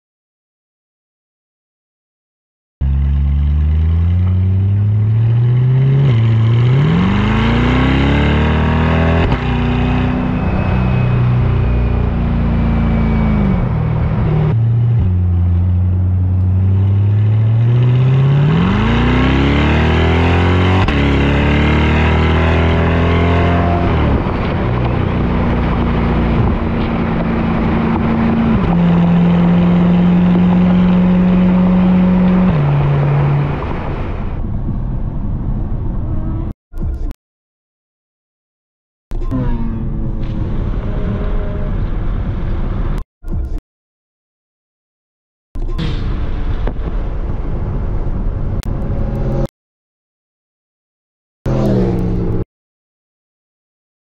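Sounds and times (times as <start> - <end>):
road and wind noise: 2.8 - 37.1, 39.2 - 43.6, 45.6 - 49.5, 51.5 - 52.4
car engine revving through upshifts: 2.9 - 33.9, 51.5 - 52.4.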